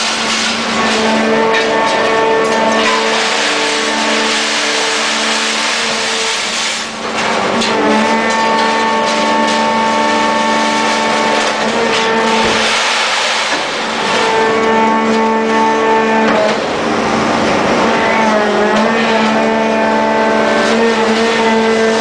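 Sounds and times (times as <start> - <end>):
hydraulic press whine: 0.0 - 22.0
broad rushing noise: 2.7 - 7.4, 12.1 - 14.4.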